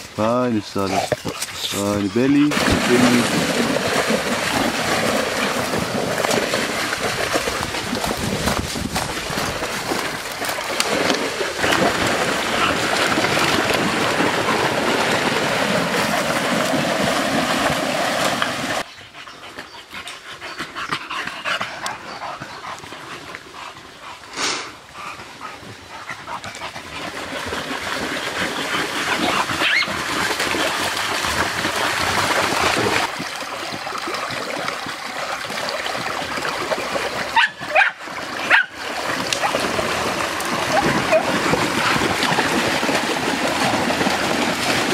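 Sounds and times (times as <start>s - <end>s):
dogs splashing through water: 0.0s - 18.9s, 19.5s - 44.9s
flowing creek water: 0.0s - 44.9s
dog yelping: 29.6s - 29.9s, 37.4s - 38.7s.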